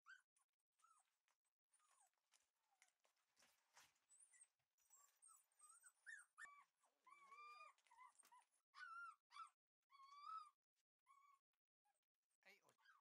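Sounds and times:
puppy whining: 0.1s - 1.2s, 3.8s - 12.0s.

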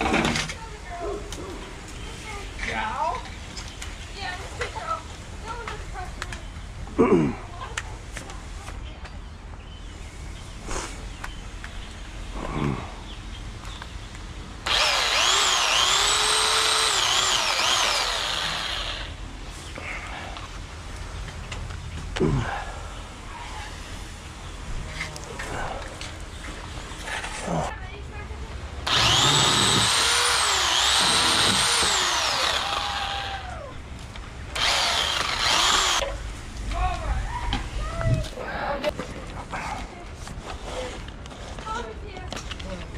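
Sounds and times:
electric pole saw cutting branch: 14.6s - 19.2s, 28.8s - 33.6s, 34.5s - 36.1s.

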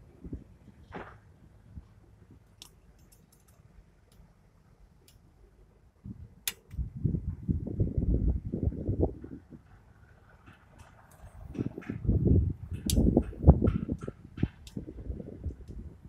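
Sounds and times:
low rumbling noise: 3.8s - 16.0s
light metallic clicks: 6.4s - 6.8s.

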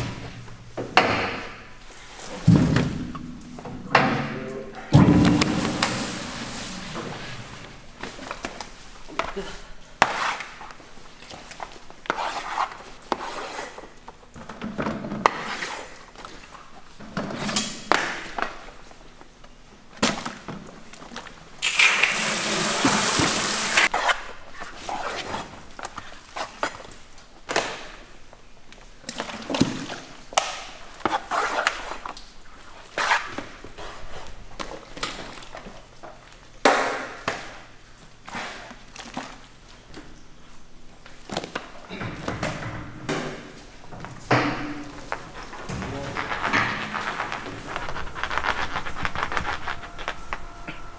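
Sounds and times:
chunks thumping into plastic buckets: 2.3s - 9.4s, 41.1s - 46.9s
hose spraying water: 5.4s - 7.6s, 21.6s - 23.9s.

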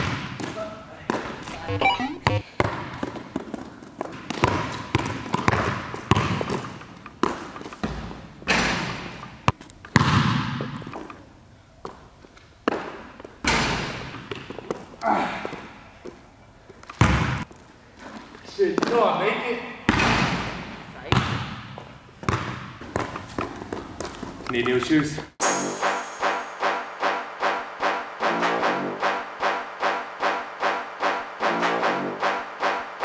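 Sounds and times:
basketball bouncing on hardwood floor: 0.0s - 1.3s, 4.2s - 8.2s, 9.5s - 10.8s, 17.0s - 17.4s, 21.1s - 24.1s
ball hitting rim and backboard: 0.0s - 3.2s, 4.2s - 10.9s, 17.0s - 17.4s, 19.9s - 23.6s.

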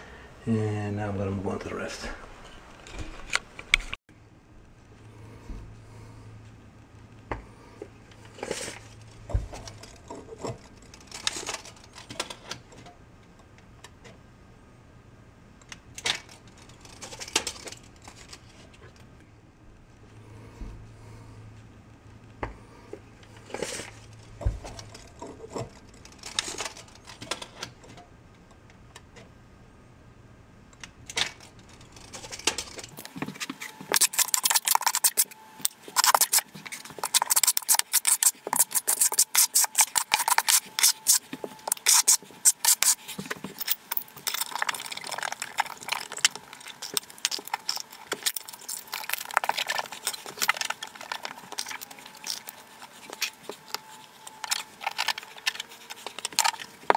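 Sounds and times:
glass tiles clicking and scraping: 31.7s - 56.9s.

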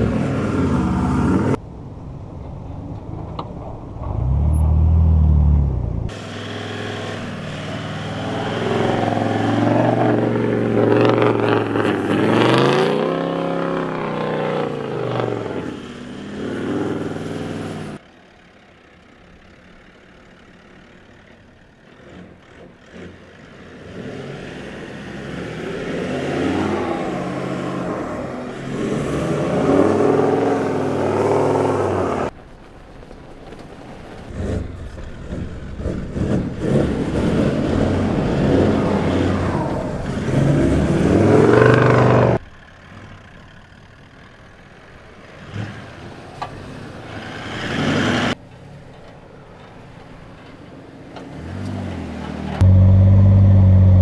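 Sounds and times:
off-road vehicle engine revving: 0.0s - 1.6s, 3.9s - 18.0s, 21.9s - 32.4s, 34.3s - 43.3s, 45.3s - 48.4s, 51.2s - 54.0s.

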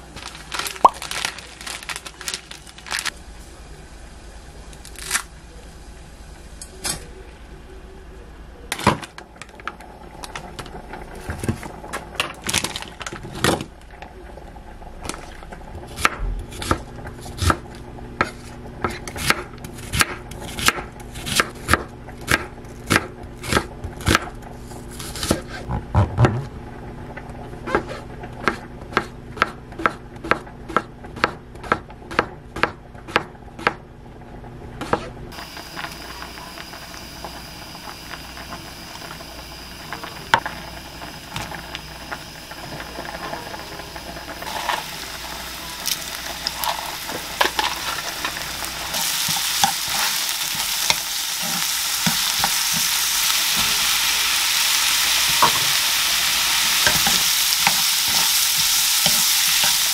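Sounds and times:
food packaging rustling: 0.0s - 3.2s, 11.2s - 13.6s, 44.5s - 54.0s
knife chopping on wooden board: 28.4s - 33.8s.

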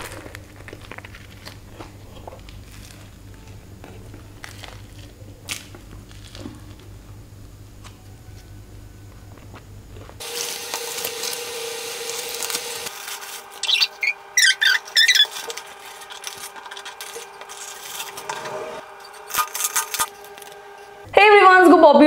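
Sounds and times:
paper wrapper rustling and crinkling: 0.0s - 6.9s, 10.0s - 20.8s.

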